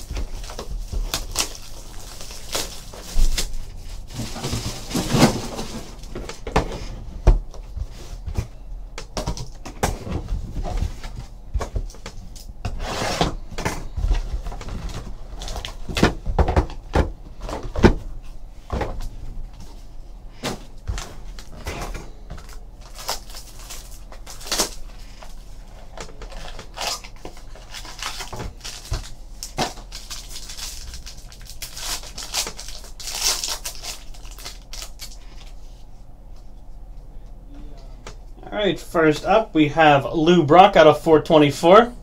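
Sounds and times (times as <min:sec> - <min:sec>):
cardboard boxes knocking and thudding: 0:04.1 - 0:08.5, 0:13.0 - 0:18.1.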